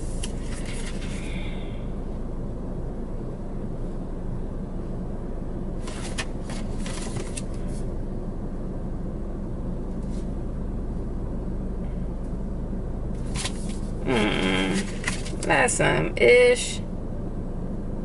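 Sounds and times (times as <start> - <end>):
glossy pages rustling: 0.0 - 1.2, 5.8 - 7.5, 13.2 - 13.9, 14.7 - 15.5
steady low hum: 0.0 - 18.0.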